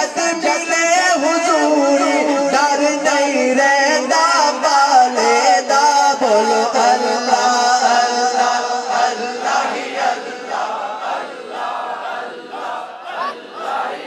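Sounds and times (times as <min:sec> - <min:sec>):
men chanting and shouting: 0:06.4 - 0:14.0.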